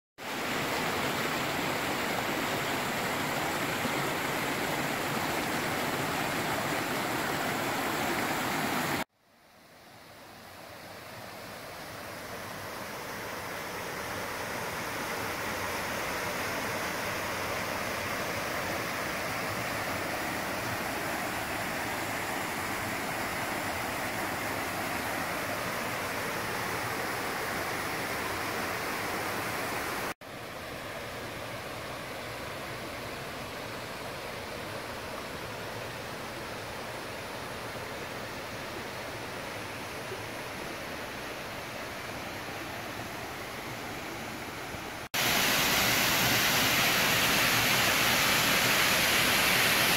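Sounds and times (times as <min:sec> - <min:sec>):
stream rushing over rocks: 0:00.2 - 0:09.1, 0:10.6 - 0:49.9
waterfall spilling into pool: 0:00.2 - 0:09.1, 0:45.0 - 0:49.9.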